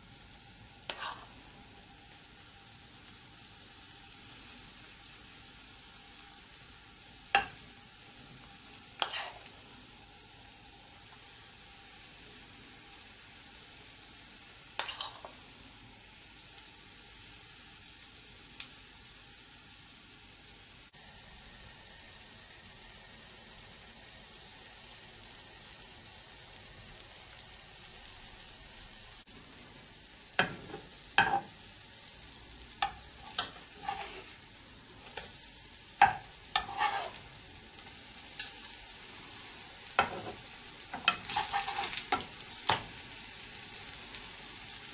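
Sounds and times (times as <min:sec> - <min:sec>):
batter sizzling in oil: 0:00.0 - 0:44.9
spatula scraping a pan: 0:00.9 - 0:01.4, 0:09.0 - 0:09.6, 0:14.8 - 0:15.4, 0:30.4 - 0:31.5, 0:32.8 - 0:35.4, 0:36.0 - 0:37.4, 0:38.3 - 0:38.8, 0:39.9 - 0:42.8.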